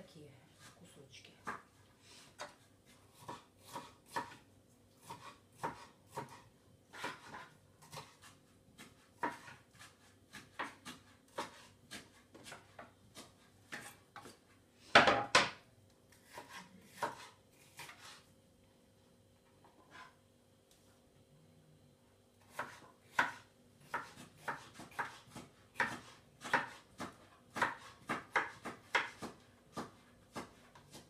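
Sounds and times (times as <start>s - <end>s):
knife chopping on wooden board: 2.4s - 4.4s, 5.0s - 15.6s, 16.2s - 18.2s, 22.5s - 31.0s.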